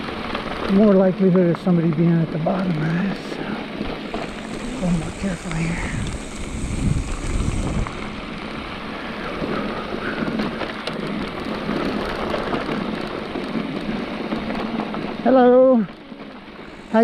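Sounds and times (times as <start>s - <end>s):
bike tyres crunching over dirt: 0.0s - 15.3s
wind rushing over microphone: 2.7s - 15.2s
bike clicks and rattles: 9.4s - 15.2s.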